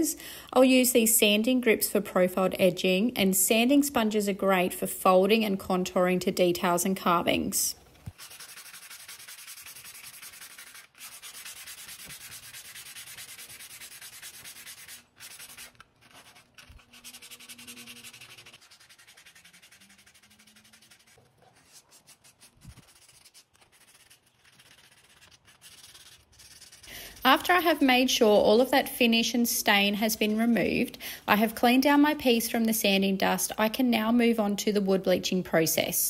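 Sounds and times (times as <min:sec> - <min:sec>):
sandpaper scratching wood: 0:08.1 - 0:27.8.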